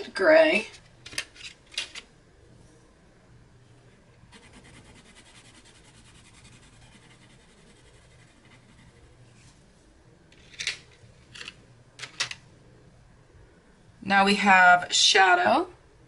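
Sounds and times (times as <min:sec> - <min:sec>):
colored pencil scratching on paper: 0:04.3 - 0:09.6.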